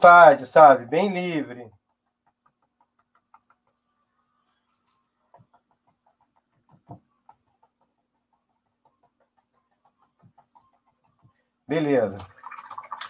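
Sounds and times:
paintbrush tapping on canvas: 1.7 - 4.1, 5.0 - 11.5.

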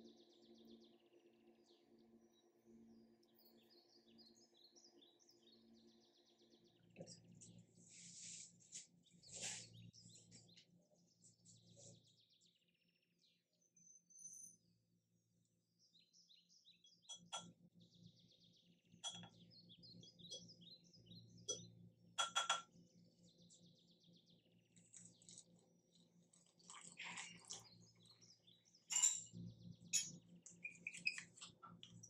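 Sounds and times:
small birds chirping: 0.0 - 14.8, 15.4 - 32.0
spoon clinking on glass bowl: 28.9 - 30.2.

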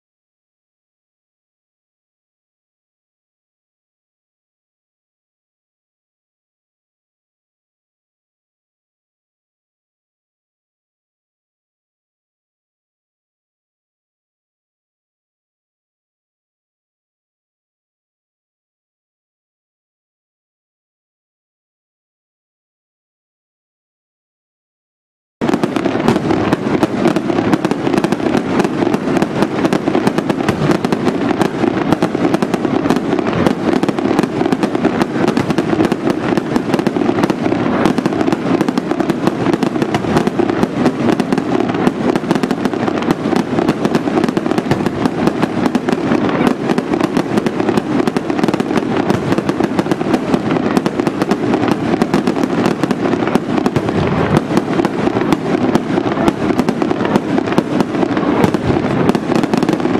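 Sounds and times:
fireworks bangs and crackles: 25.4 - 59.9.

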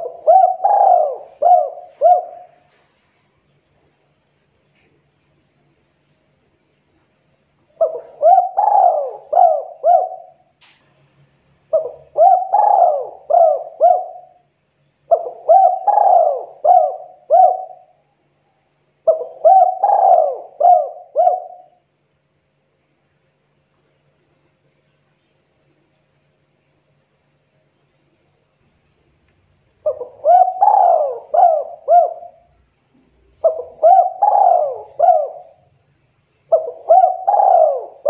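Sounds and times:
dove cooing: 0.0 - 2.8, 7.8 - 10.5, 11.7 - 14.4, 15.1 - 18.0, 19.0 - 21.8, 29.8 - 35.7, 36.5 - 38.0.

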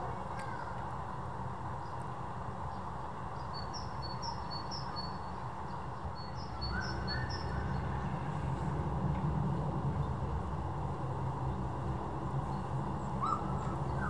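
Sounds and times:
distant jet engine rumble: 6.0 - 14.0.

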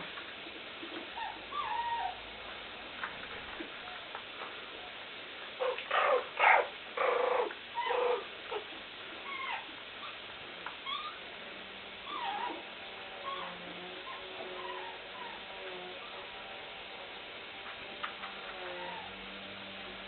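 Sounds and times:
puppies whining squeaks: 1.2 - 2.2, 9.2 - 10.2, 10.8 - 11.2, 12.0 - 12.6, 13.2 - 16.2, 18.6 - 19.2
puppies yapping: 5.6 - 8.6.

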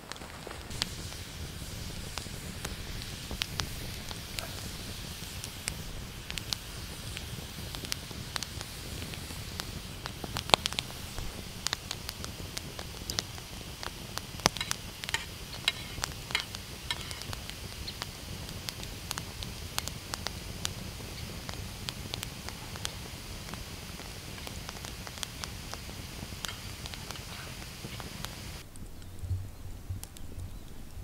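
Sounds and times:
campfire crackling: 0.0 - 31.0
spoon scraping in metal tin: 14.6 - 17.3.

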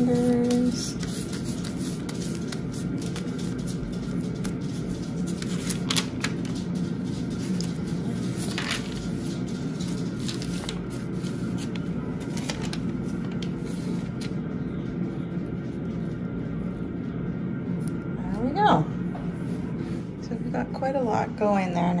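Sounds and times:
paper rustling and crinkling: 0.0 - 14.4
steady low hum: 0.0 - 22.0.

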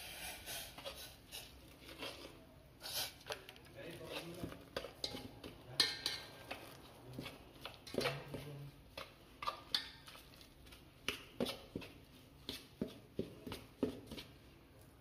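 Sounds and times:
steel spoon scraping steel bowl: 0.0 - 3.4, 4.0 - 8.4.

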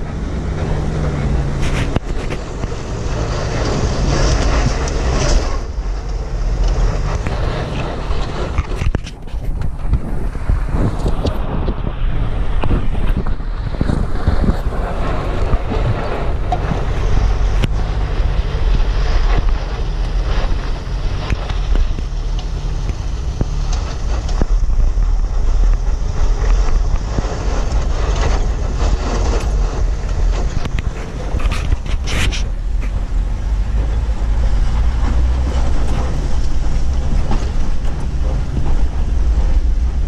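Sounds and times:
vehicle and tyre rumble: 0.0 - 40.0
wind buffeting microphone: 0.0 - 40.0.

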